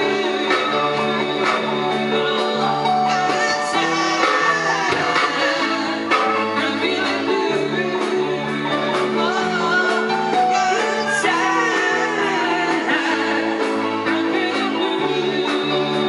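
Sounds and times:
bass line: 0:00.0 - 0:16.0
electric guitar: 0:00.0 - 0:16.0
men singing: 0:00.0 - 0:16.0
drum beat: 0:03.4 - 0:06.8.

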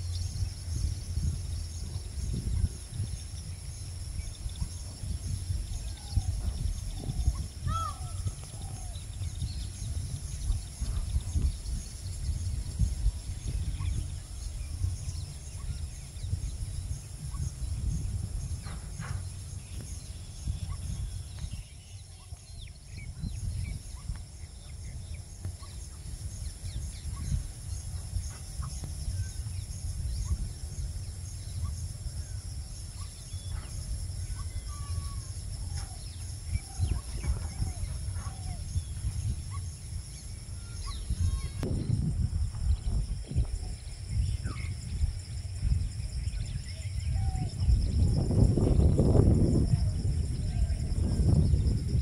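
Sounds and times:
high insect drone: 0:00.0 - 0:52.0
wind buffeting microphone: 0:00.0 - 0:52.0
faint bird calls: 0:04.2 - 0:30.6, 0:31.4 - 0:41.9.

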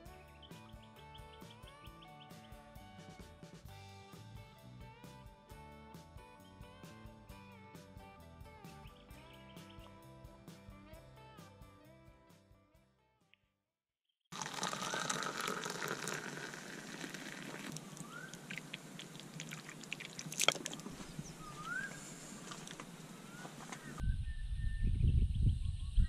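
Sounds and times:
birds calling rising whistles: 0:17.9 - 0:18.8, 0:20.7 - 0:26.0
wind rumble on microphone: 0:23.9 - 0:26.0.

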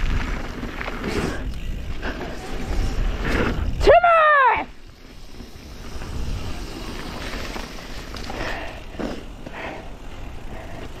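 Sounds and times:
bike scuffs and rattles: 0:00.0 - 0:03.9, 0:04.7 - 0:11.0
wind rumble on microphone: 0:00.0 - 0:03.9, 0:05.8 - 0:07.0
bike tyres crunching over dirt: 0:00.0 - 0:11.0.

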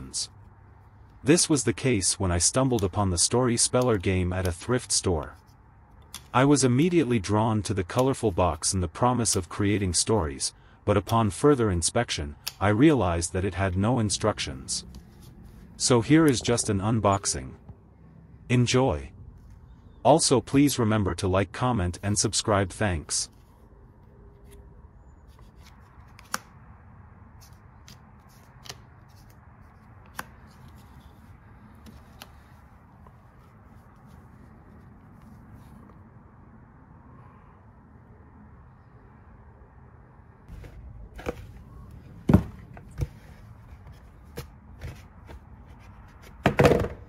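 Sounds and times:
cardboard knocking on a table: 0:46.4 - 0:47.0.

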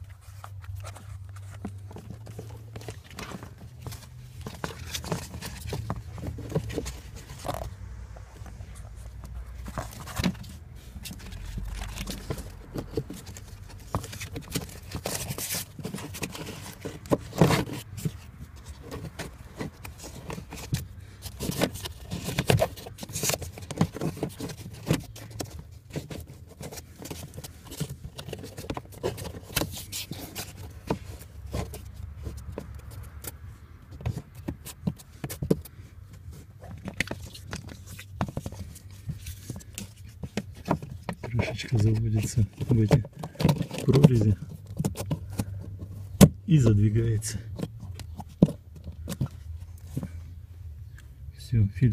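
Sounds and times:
filter scraping and rustling: 0:00.0 - 0:51.0.

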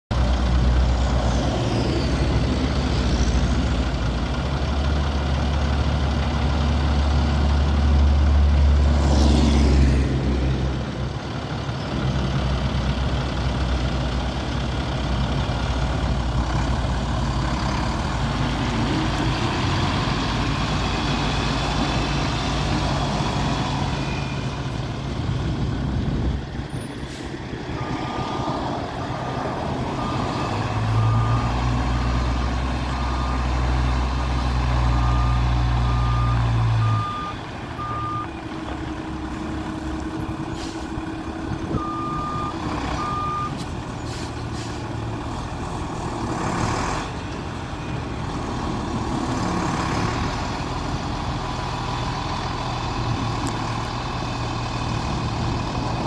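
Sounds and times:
truck engine idling: 0:28.6 - 0:56.0.

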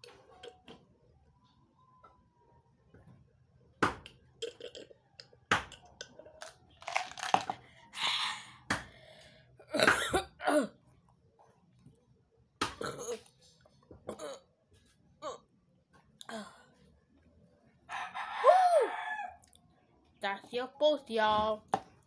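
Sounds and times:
plastic cup knocking on table: 0:06.8 - 0:07.6.

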